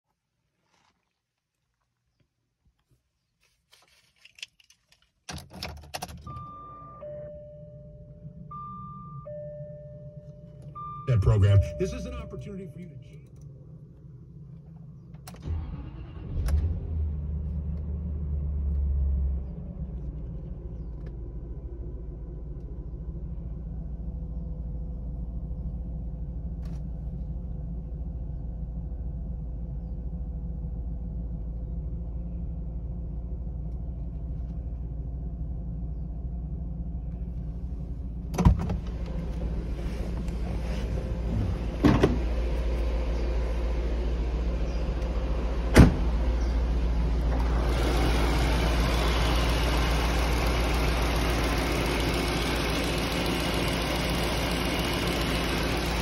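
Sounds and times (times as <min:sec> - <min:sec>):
car engine starting and idling: 0:03.7 - 0:56.0
car door opening: 0:38.3 - 0:42.3, 0:45.7 - 0:46.1.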